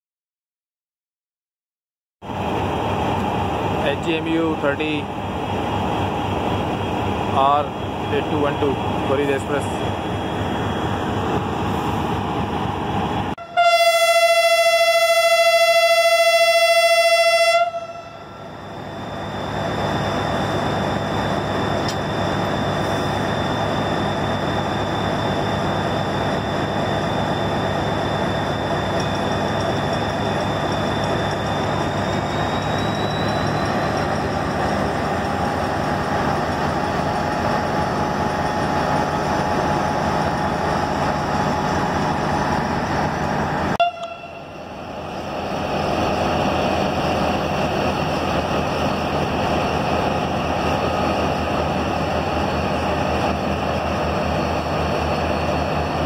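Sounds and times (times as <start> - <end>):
locomotive horn blast: 13.4 - 18.4, 43.7 - 44.6.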